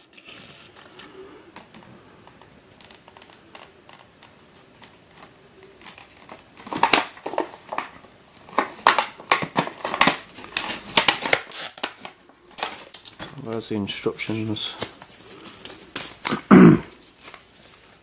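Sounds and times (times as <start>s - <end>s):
plastic blister pack crinkling: 0.0s - 18.0s
paper insert rustling: 2.8s - 18.0s.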